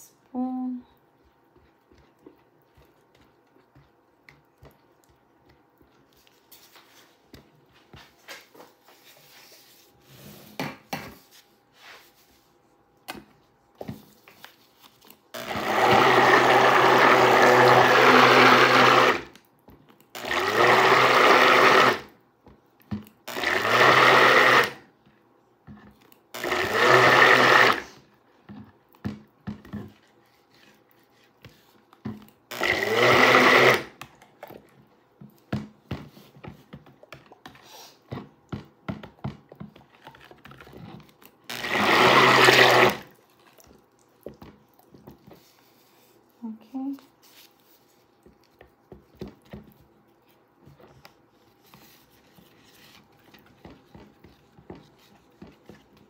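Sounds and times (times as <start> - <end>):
stick blender running: 15.4 - 19.4, 20.2 - 22.1, 23.3 - 24.9, 26.4 - 28.0, 32.5 - 34.0, 40.8 - 43.2.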